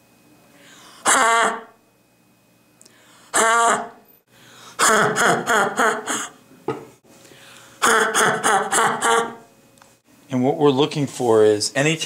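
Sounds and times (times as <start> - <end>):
boy's silly vocal noise: 3.3 - 4.0
laughter in quick bursts: 7.8 - 9.4.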